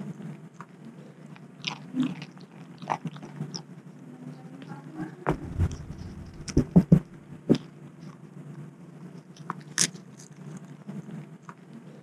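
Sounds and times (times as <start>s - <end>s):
animals chewing and crunching: 0.0s - 8.3s
steady low hum: 0.0s - 12.0s.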